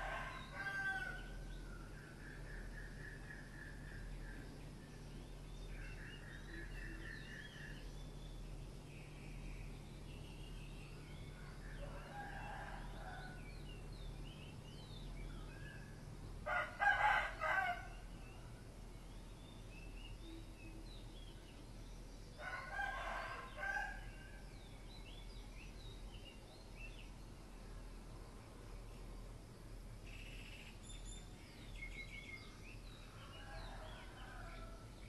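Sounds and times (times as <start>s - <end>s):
roosters crowing: 0.0s - 1.4s, 11.7s - 13.4s, 16.4s - 18.1s, 22.4s - 24.5s, 33.2s - 34.9s
small birds chirping: 0.0s - 12.6s, 13.2s - 35.0s.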